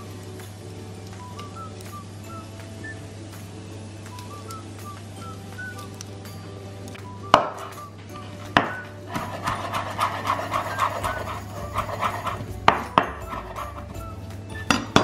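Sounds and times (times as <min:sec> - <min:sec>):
knife chopping on wooden board: 0:08.6 - 0:13.9.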